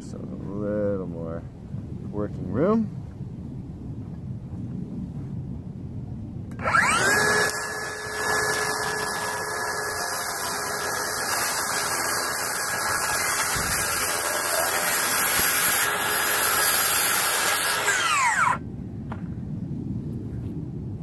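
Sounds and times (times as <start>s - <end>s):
circular saw cutting metal: 6.5s - 18.6s.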